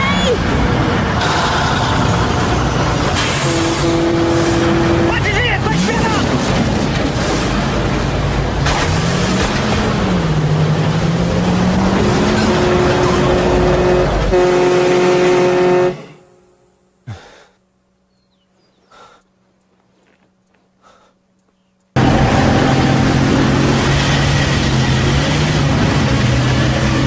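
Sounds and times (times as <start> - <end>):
heavy truck engines running: 0.0 - 27.0
truck horn blaring: 3.2 - 5.9, 12.0 - 16.7, 22.0 - 25.5.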